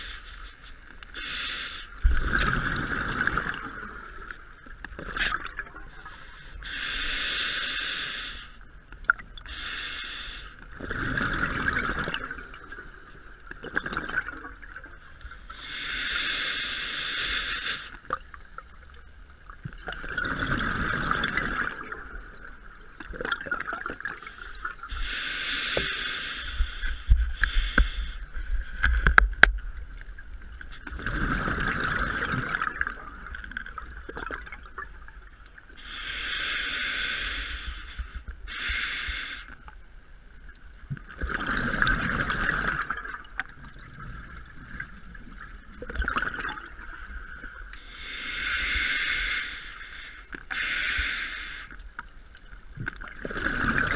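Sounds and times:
regulator inhalation hiss: 0:00.0 - 0:02.0, 0:06.0 - 0:08.6, 0:09.5 - 0:10.6, 0:15.3 - 0:18.0, 0:24.9 - 0:28.4, 0:35.8 - 0:39.6, 0:47.8 - 0:51.8
bubbling exhalations underwater: 0:30.9 - 0:33.3, 0:41.2 - 0:43.2, 0:45.8 - 0:46.8.

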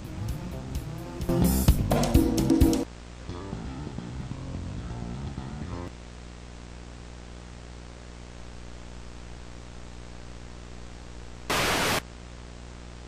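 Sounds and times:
electrical hum with hiss: 0:00.0 - 0:13.0
loud tv static burst: 0:11.4 - 0:12.1.

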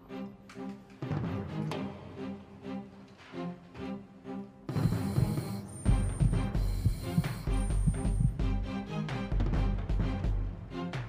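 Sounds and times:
tense background score: 0:01.3 - 0:10.9
sustained tones: 0:04.7 - 0:08.4
pulsing low beat: 0:04.7 - 0:08.6.

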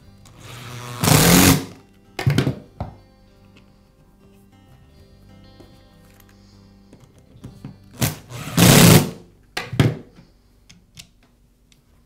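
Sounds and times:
angle grinder burst: 0:00.4 - 0:01.8, 0:08.0 - 0:09.2.

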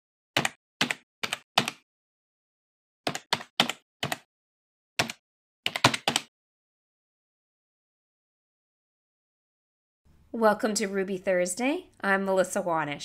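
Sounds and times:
computer keystrokes: 0:00.4 - 0:01.8, 0:03.1 - 0:04.3, 0:05.0 - 0:06.3.

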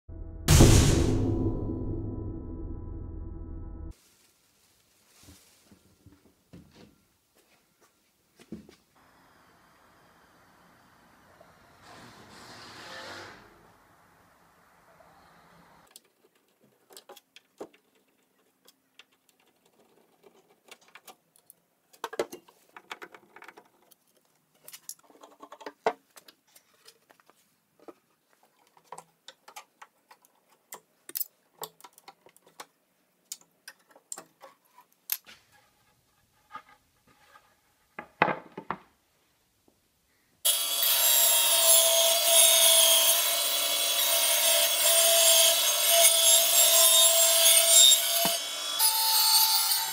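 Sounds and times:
table saw cutting wood: 0:11.6 - 0:13.7, 0:40.5 - 0:49.9.

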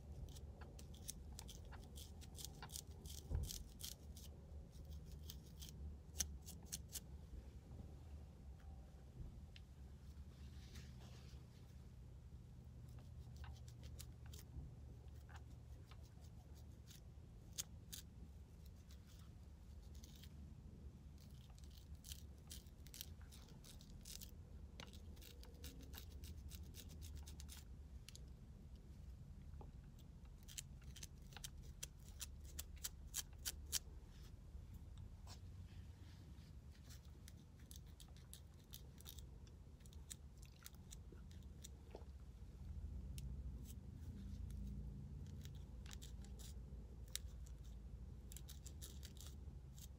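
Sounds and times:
low steady hum: 0:00.0 - 0:49.9
comb scraping scalp: 0:00.1 - 0:07.0, 0:12.9 - 0:14.5, 0:21.2 - 0:27.7, 0:30.3 - 0:34.3.

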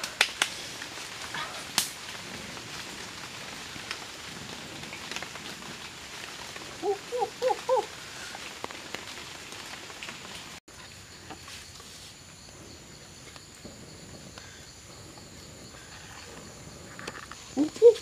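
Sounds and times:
campfire crackling and popping: 0:00.0 - 0:10.6.

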